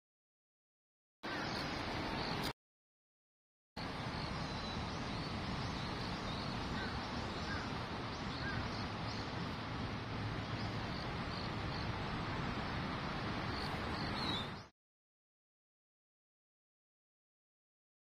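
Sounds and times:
small birds chirping: 0:01.3 - 0:02.5, 0:03.8 - 0:09.8, 0:10.4 - 0:12.5, 0:13.3 - 0:14.7.

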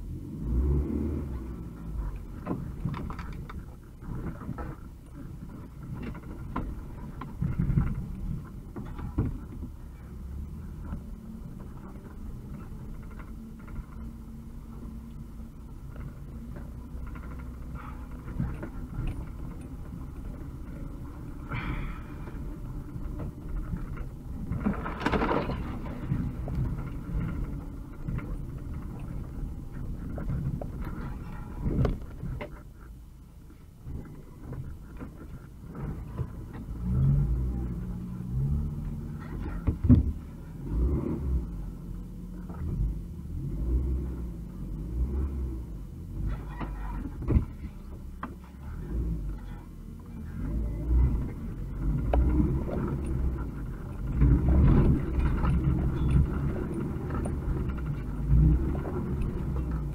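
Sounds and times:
van engine running: 0:00.0 - 0:59.9.

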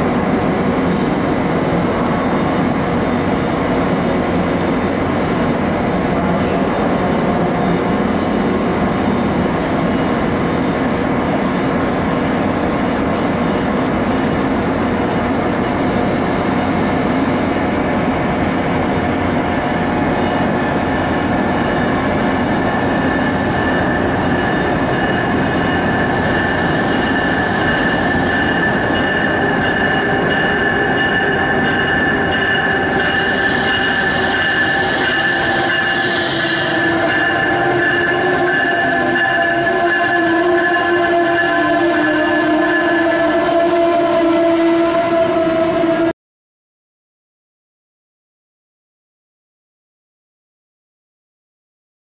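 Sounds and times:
train rumble: 0:00.0 - 0:46.1
train wheels squealing on rails: 0:00.5 - 0:01.2, 0:02.6 - 0:03.2, 0:04.0 - 0:06.2, 0:07.6 - 0:08.7, 0:17.7 - 0:43.8.

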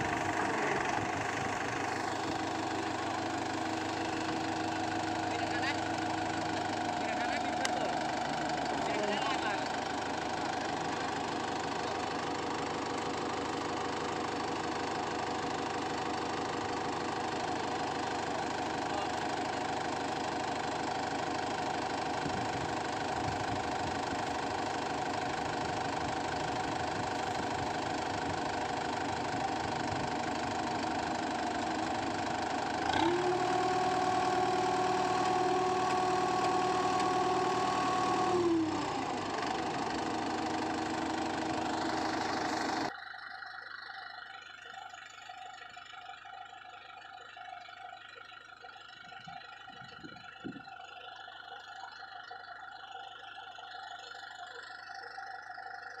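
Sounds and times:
tractor diesel engine revving: 0:00.0 - 0:44.0.

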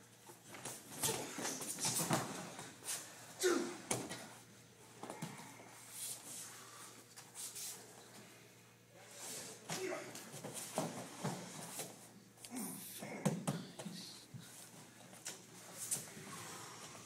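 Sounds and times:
person grunting: 0:03.4 - 0:04.0, 0:09.7 - 0:10.2, 0:12.5 - 0:13.7.

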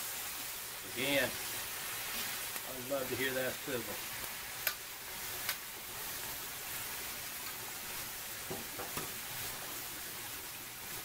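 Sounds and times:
food sizzling on griddle: 0:00.0 - 0:11.0.

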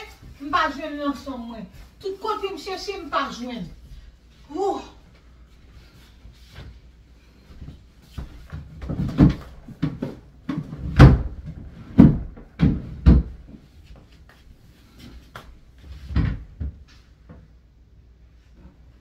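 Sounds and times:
drawers and cabinet doors banging: 0:08.6 - 0:13.5.

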